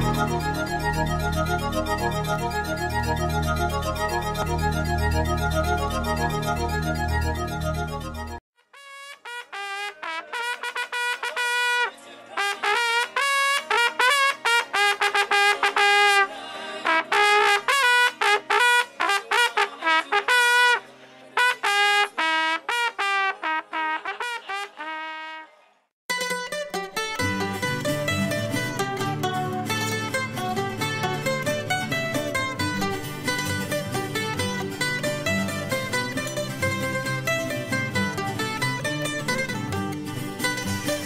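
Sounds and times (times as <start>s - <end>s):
music: 0.0s - 25.4s, 26.1s - 41.0s
solo horn melody: 8.6s - 20.8s, 21.4s - 25.5s.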